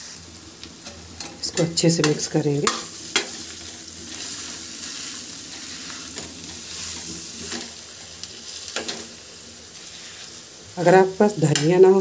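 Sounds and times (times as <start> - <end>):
oil sizzling: 0.0 - 12.0.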